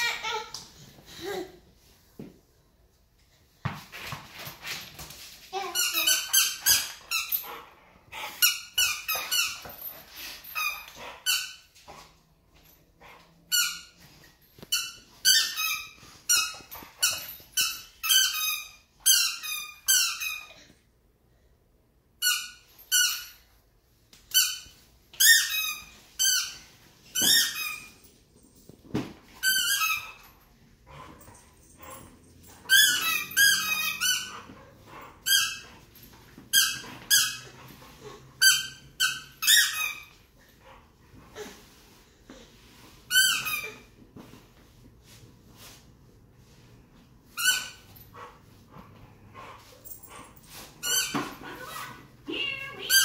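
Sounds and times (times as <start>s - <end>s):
dog chomping squeaky ball: 50.8s - 51.9s.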